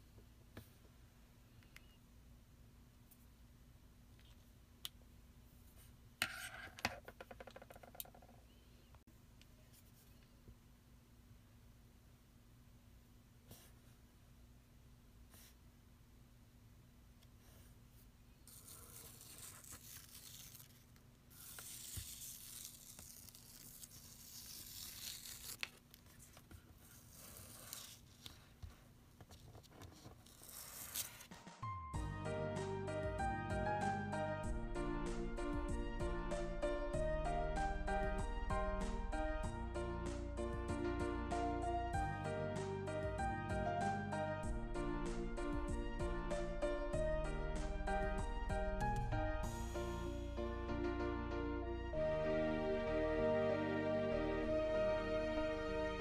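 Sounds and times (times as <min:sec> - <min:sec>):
masking tape peeling off paper: 0:18.5 - 0:28.4, 0:30.0 - 0:31.3.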